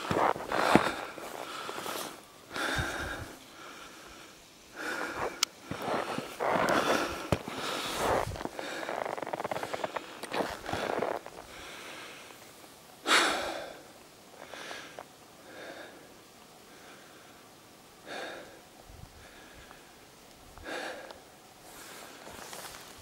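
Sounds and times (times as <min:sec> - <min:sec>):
person breathing hard: 0:00.0 - 0:12.4, 0:13.0 - 0:20.0, 0:20.6 - 0:22.8.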